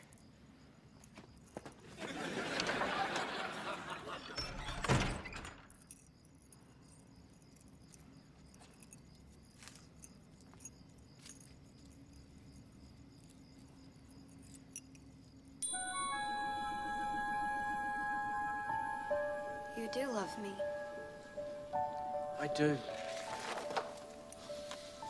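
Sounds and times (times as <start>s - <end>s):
metallic necklace chain clinks: 5.6s - 15.8s.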